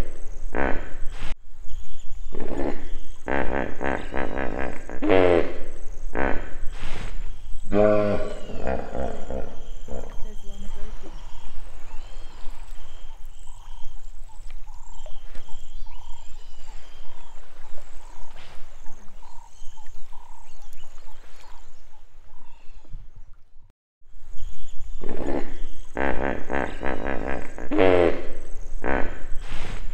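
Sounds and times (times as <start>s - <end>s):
repeated animal call note: 7.7s - 10.4s, 25.0s - 29.2s.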